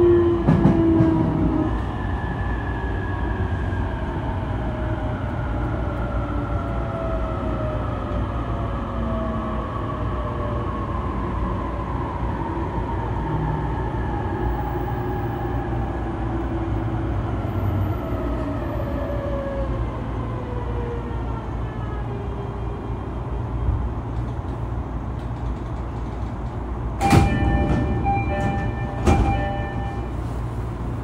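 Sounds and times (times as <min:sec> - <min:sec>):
train wheels rumbling: 0:00.0 - 0:07.4, 0:23.7 - 0:31.0
train inverter whine: 0:00.0 - 0:31.0.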